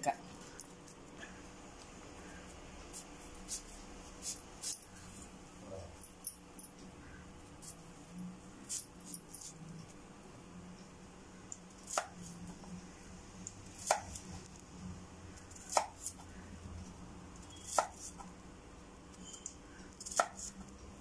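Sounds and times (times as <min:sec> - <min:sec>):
knife cutting plantain: 0:11.8 - 0:12.4, 0:13.7 - 0:14.4, 0:15.5 - 0:16.2, 0:17.5 - 0:18.3, 0:20.0 - 0:20.7.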